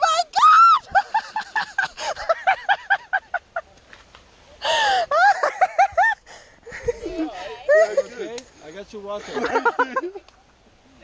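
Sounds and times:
person laughing hard: 4.8s - 8.1s.

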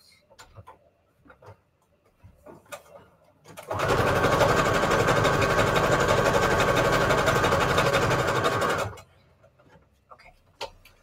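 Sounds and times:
electric sewing machine stitching: 3.6s - 9.0s.

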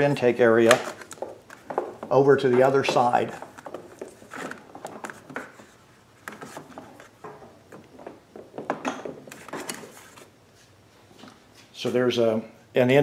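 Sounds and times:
rubber hose rubbing and scraping: 1.0s - 10.4s.

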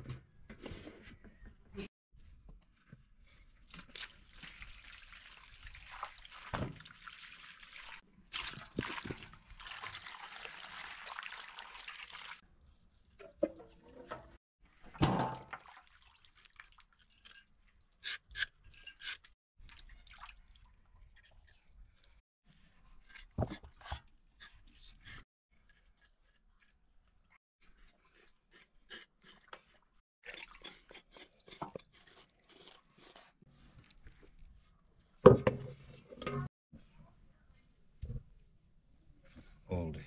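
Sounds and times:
water pouring and splashing: 3.7s - 12.4s, 14.6s - 18.0s, 19.6s - 22.2s, 30.2s - 32.0s
knocks and handling sounds: 35.2s - 36.5s.

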